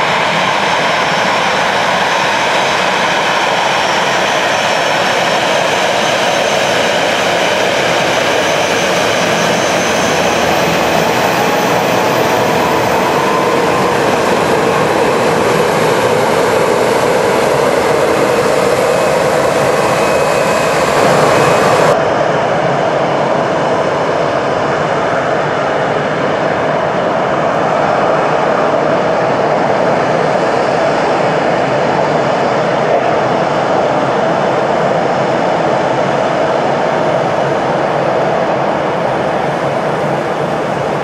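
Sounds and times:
jet engines roaring: 0:00.0 - 0:41.0.

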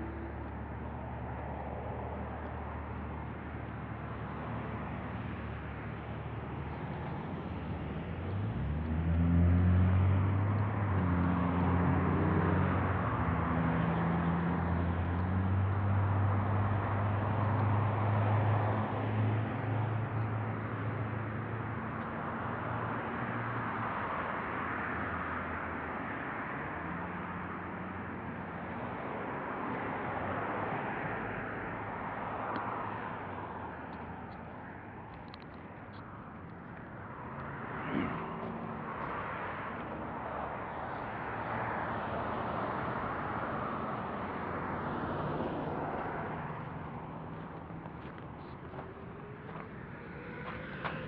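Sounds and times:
cars passing: 0:00.0 - 0:51.0
low engine hum: 0:27.0 - 0:51.0.

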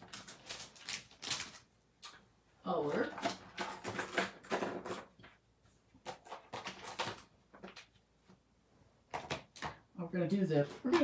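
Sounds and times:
clicks and knocks of items: 0:03.1 - 0:05.4, 0:06.0 - 0:08.0, 0:09.1 - 0:09.9.

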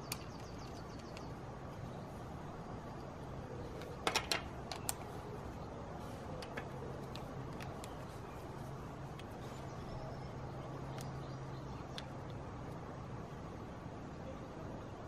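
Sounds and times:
plastic parts clicking and clacking: 0:03.8 - 0:05.0.

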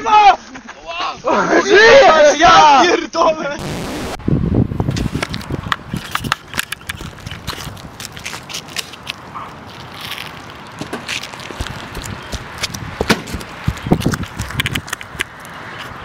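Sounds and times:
clicks crackles and scrapes: 0:04.9 - 0:16.0.

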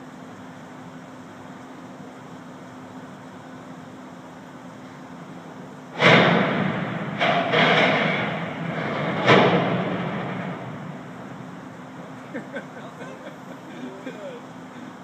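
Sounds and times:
grandstand structure crashing: 0:06.0 - 0:13.1.

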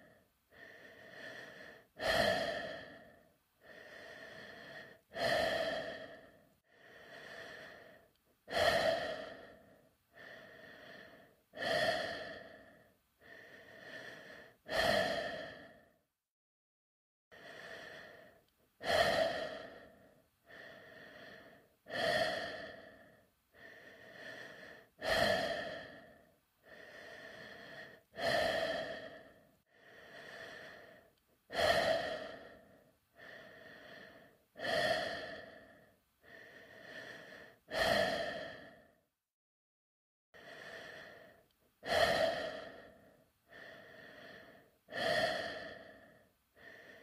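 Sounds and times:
person breathing in helmet: 0:00.0 - 0:16.0, 0:17.3 - 0:39.1, 0:40.4 - 0:47.0.

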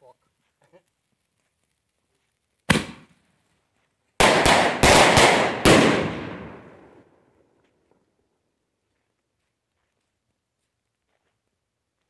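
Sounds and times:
firework bangs overhead: 0:04.2 - 0:06.8.

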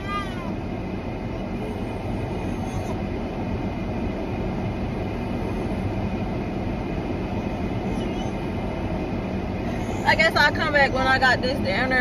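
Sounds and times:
car running low rumble: 0:00.0 - 0:12.0.

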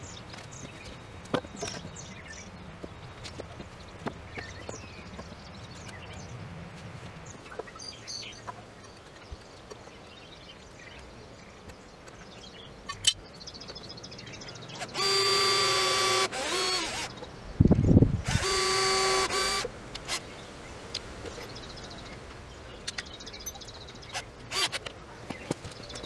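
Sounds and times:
cordless drill whining: 0:14.8 - 0:17.1, 0:18.3 - 0:20.2.

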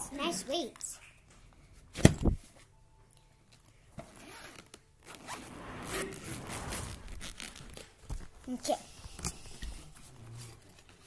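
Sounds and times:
zipper being pulled shut: 0:04.0 - 0:08.0.

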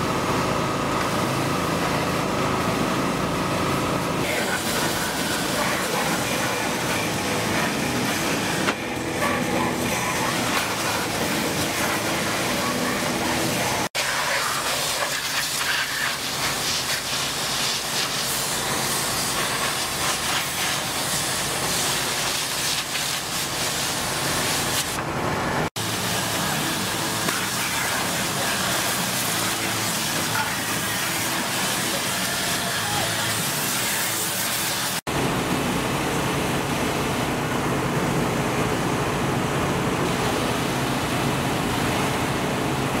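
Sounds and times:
pressure washer spray hissing: 0:04.2 - 0:24.9, 0:25.8 - 0:35.0.

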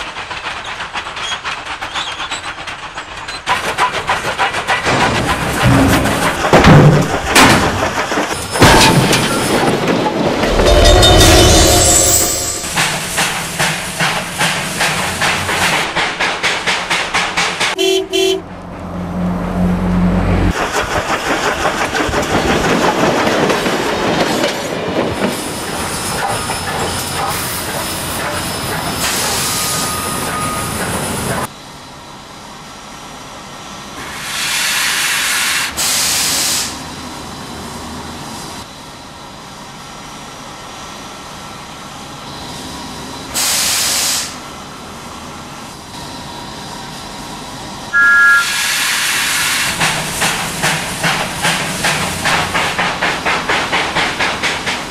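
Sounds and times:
steam locomotive chuffing: 0:00.0 - 0:08.6, 0:10.4 - 0:18.4, 0:20.5 - 0:31.6, 0:45.8 - 0:54.9
trucks rattling on rails: 0:00.0 - 0:54.9
steady steam hiss: 0:34.0 - 0:36.9, 0:43.3 - 0:44.5, 0:46.6 - 0:54.8
bursts of escaping steam: 0:48.3 - 0:52.2.

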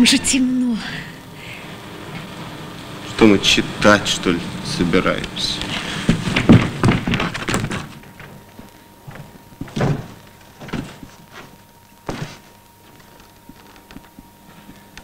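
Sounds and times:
faint steady hum: 0:00.0 - 0:15.0
dull thuds and knocks: 0:06.0 - 0:08.4, 0:09.0 - 0:12.5.

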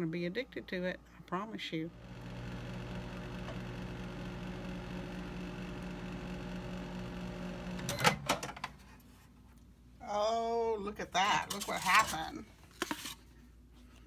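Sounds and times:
microwave oven humming: 0:01.9 - 0:08.5.

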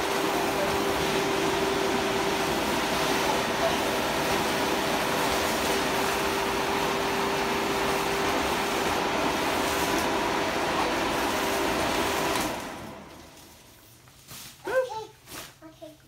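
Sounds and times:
electric blower fan humming: 0:00.0 - 0:14.3.

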